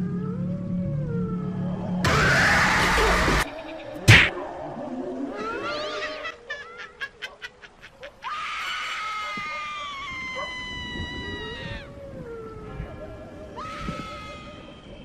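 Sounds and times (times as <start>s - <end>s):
high wailing animal cries: 5.3s - 12.5s, 13.5s - 14.8s.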